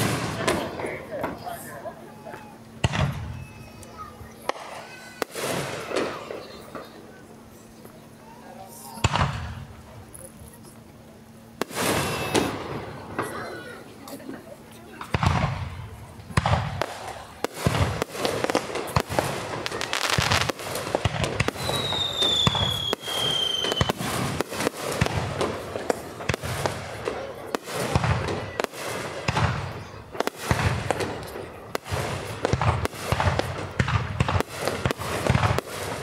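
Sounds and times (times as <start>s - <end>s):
fireworks shells bursting: 11.6s - 13.4s.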